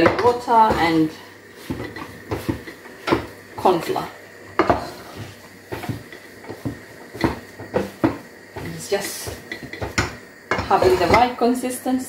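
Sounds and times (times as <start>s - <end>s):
spatula scraping a cooking pot: 0.0s - 3.4s, 4.6s - 11.4s.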